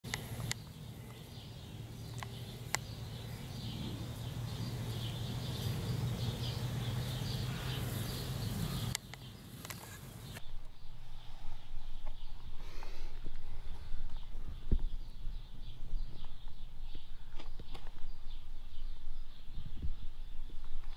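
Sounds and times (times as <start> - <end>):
sharp clicks: 0.1 - 0.7, 2.1 - 2.9
small birds chirping faintly: 0.1 - 20.9.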